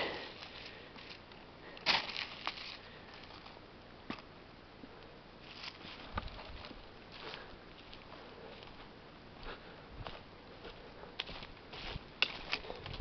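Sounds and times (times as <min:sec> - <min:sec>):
rustling in dry leaves: 0:00.0 - 0:03.6, 0:05.4 - 0:08.9, 0:11.2 - 0:13.0.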